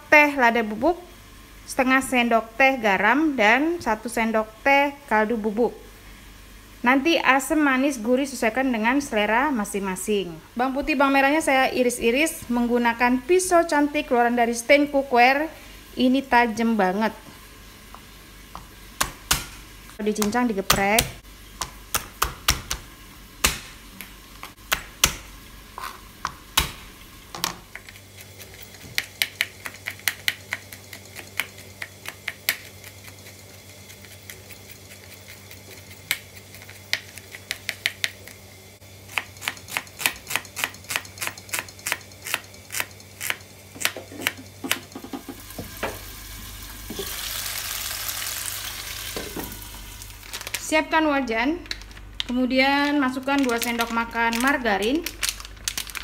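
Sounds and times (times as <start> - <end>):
food sizzling in a pan: 15.6 - 20.0, 44.4 - 50.6
knife chopping on plastic board: 18.6 - 19.6, 20.2 - 23.8.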